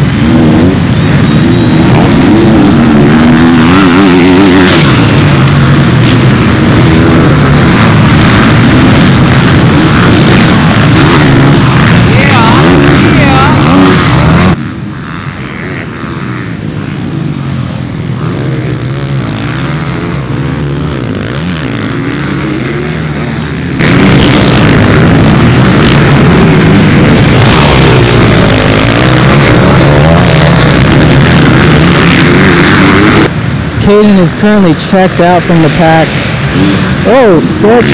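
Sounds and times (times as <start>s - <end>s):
motocross bike engines revving: 0.0s - 37.9s.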